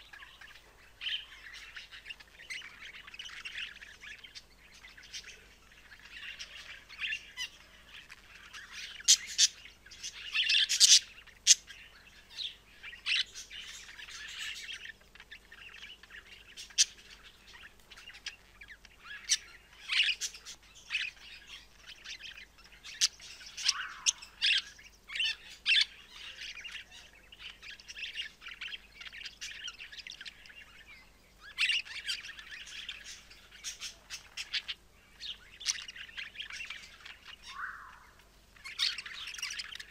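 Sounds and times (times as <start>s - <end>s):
budgerigar warbling and chattering: 0.0s - 39.9s.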